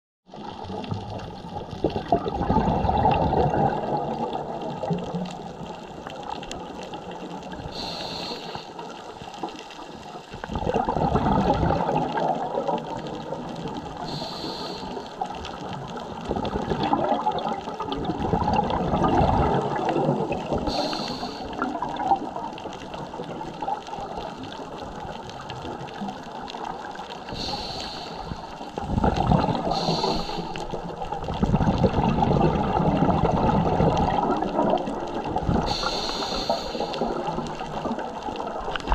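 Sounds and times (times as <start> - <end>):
exhaled bubbles rumbling: 0.3 - 38.9
diver breathing through regulator: 7.6 - 9.1, 14.0 - 15.2, 20.5 - 21.7, 27.3 - 30.8, 35.6 - 37.4.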